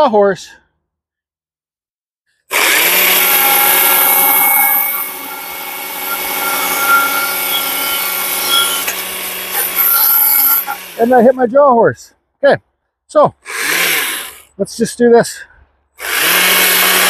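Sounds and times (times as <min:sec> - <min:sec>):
chainsaw cutting tree trunk: 0:02.5 - 0:11.2, 0:13.4 - 0:14.5, 0:16.0 - 0:17.0.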